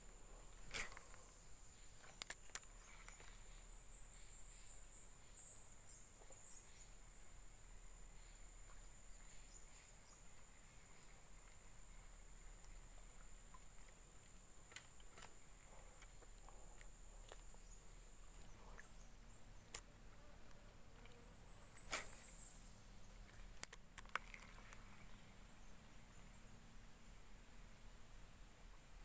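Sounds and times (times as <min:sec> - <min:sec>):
insects chirring: 0:00.0 - 0:28.8
faint high chirp: 0:00.4 - 0:13.6, 0:15.6 - 0:23.2.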